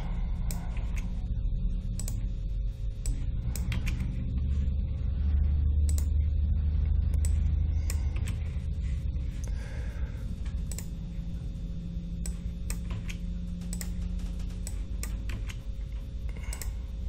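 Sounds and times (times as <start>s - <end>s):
steady low hum: 0.0s - 17.0s
computer mouse clicks: 1.9s - 2.3s, 3.0s - 4.1s, 5.8s - 6.2s, 10.6s - 11.0s, 12.2s - 14.0s, 14.6s - 15.6s, 16.3s - 16.8s.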